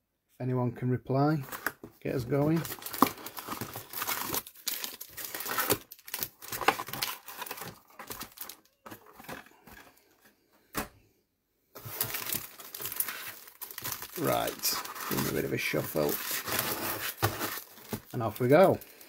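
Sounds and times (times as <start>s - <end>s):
packaging crinkling and tearing: 1.4s - 9.8s, 11.8s - 19.0s.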